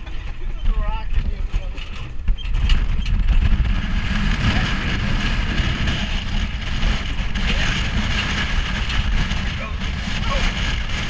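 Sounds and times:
road noise: 0.0s - 11.0s
vehicle engine and tyres rumbling: 0.0s - 11.0s.

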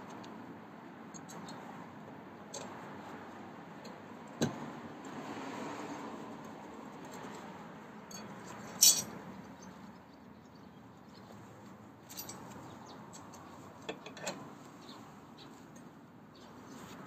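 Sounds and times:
light metal clinks: 8.1s - 9.2s, 12.0s - 13.4s.

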